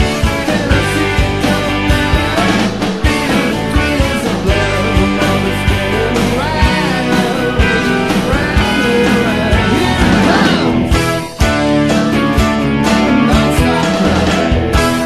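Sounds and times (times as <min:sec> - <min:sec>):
bass: 0:00.0 - 0:15.0
drums keeping a steady beat: 0:00.0 - 0:15.0
guitars: 0:00.0 - 0:15.0.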